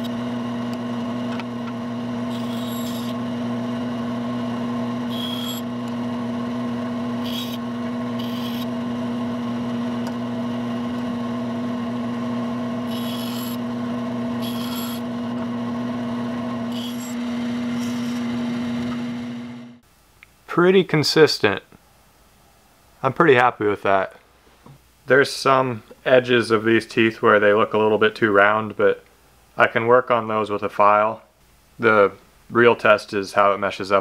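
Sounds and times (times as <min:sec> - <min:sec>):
bandsaw humming: 0:00.0 - 0:19.8.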